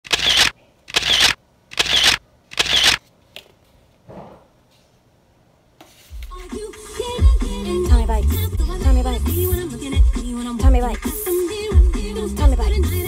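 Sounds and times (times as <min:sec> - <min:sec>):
camera shutter snapping: 0:00.0 - 0:03.0.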